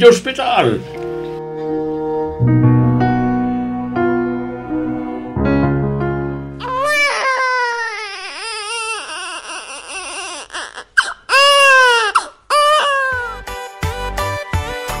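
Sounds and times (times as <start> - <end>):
baby crying: 6.6 - 13.5.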